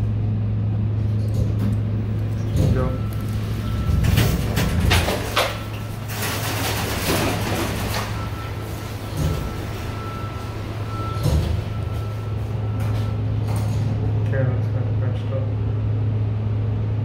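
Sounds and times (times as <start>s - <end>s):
steady low hum: 0.0s - 17.0s
elevator doors sliding: 0.9s - 14.2s.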